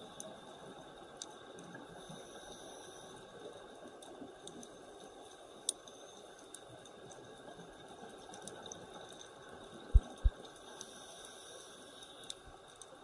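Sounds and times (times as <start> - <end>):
faint clicks: 0.1 - 13.0
underwater hiss: 1.9 - 3.5, 10.6 - 12.6.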